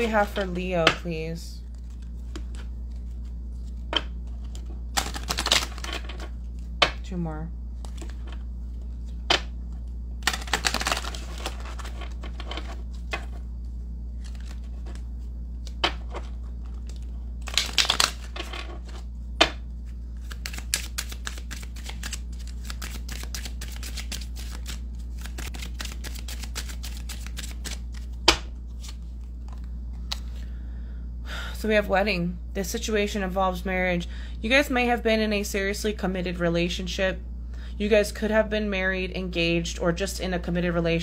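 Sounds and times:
cards being shuffled: 0.0s - 0.6s, 1.6s - 7.0s, 7.8s - 30.4s
steady low hum: 0.0s - 41.0s.

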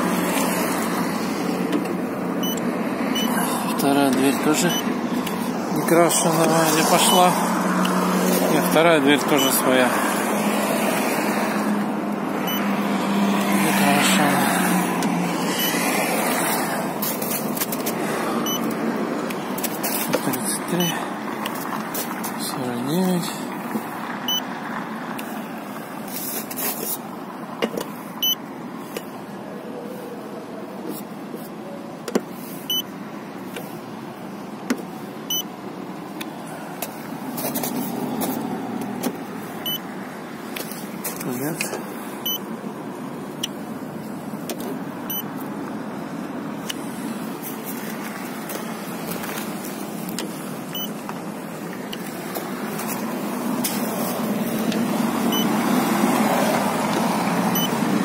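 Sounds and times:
vehicle engine hum: 0.0s - 58.0s
short electronic beeps: 2.4s - 2.6s, 12.4s - 12.7s, 18.4s - 18.7s, 28.2s - 28.4s, 32.7s - 32.9s, 35.3s - 35.5s, 39.6s - 39.8s, 42.2s - 42.5s, 45.1s - 45.3s, 50.7s - 50.9s.

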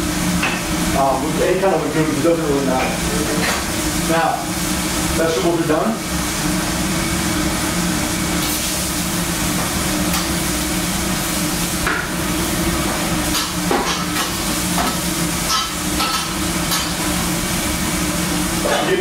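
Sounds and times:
food sizzling: 0.0s - 19.0s
steady hum: 0.0s - 19.0s.

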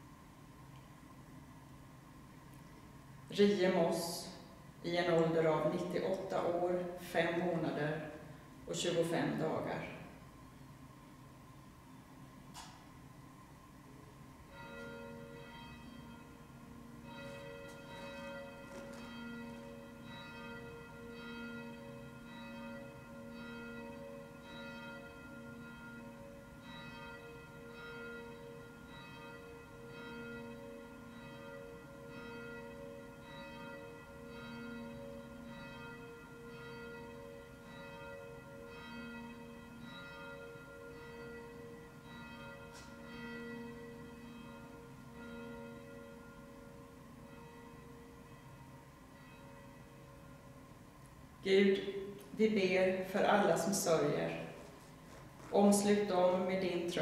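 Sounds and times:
church bell tolling: 2.2s - 10.6s, 13.7s - 57.0s.

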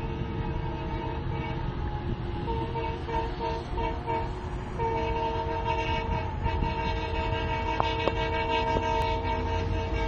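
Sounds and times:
train horn: 0.0s - 10.0s.

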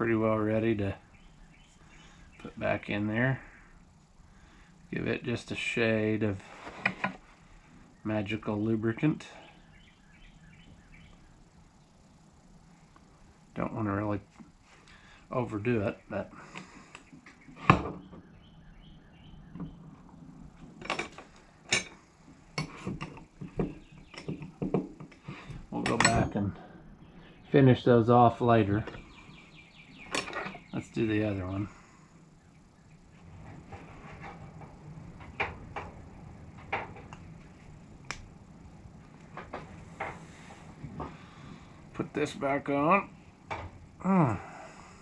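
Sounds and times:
steady low hum: 0.0s - 45.0s
metal tools clinking: 25.8s - 26.6s.

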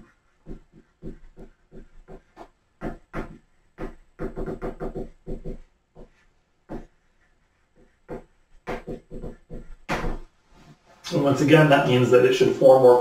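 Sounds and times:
marker squeaking on whiteboard: 0.0s - 10.8s.

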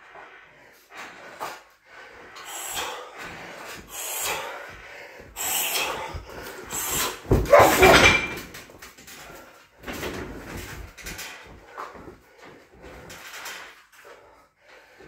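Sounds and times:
person breathing hard: 0.0s - 7.5s, 11.2s - 15.0s.

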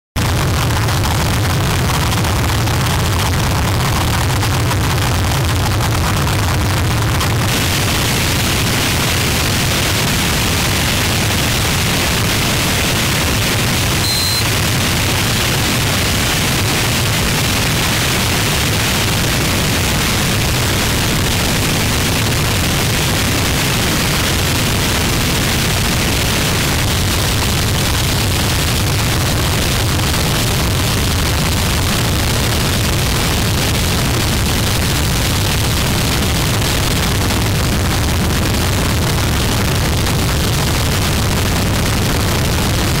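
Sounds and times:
distorted harsh noise music: 0.2s - 43.0s
short high tone: 13.9s - 14.6s.

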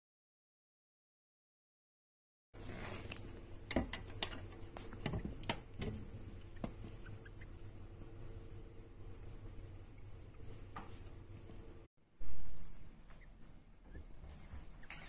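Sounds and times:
faint steady hum: 2.6s - 15.0s
hamster squeaking: 4.9s - 8.2s, 9.4s - 10.8s, 12.3s - 15.0s.

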